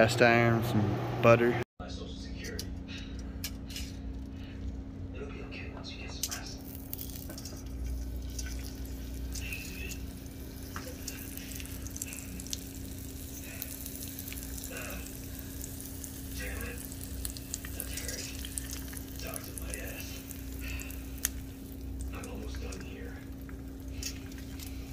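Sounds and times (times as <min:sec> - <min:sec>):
steaks sizzling in a skillet: 0:08.0 - 0:22.1.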